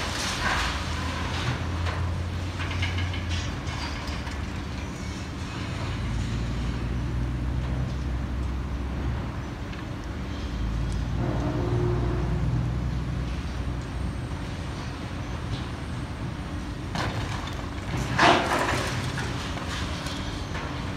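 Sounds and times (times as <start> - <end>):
crane engine rumbling: 0.0 - 20.9.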